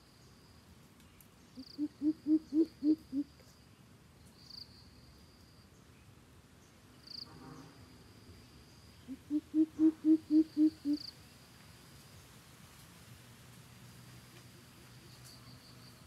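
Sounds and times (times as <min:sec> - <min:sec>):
bird giving deep hoots: 0:01.6 - 0:03.3, 0:09.1 - 0:11.0.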